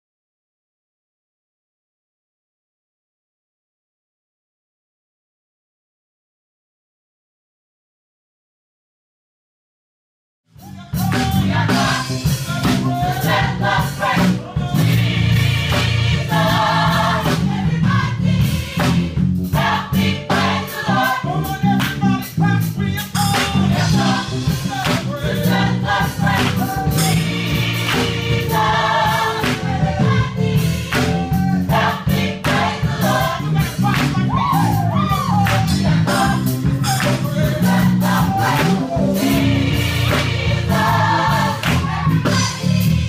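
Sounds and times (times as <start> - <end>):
drums: 10.5 - 43.0
band playing: 10.6 - 43.0
choir singing: 11.2 - 22.4, 23.1 - 43.0.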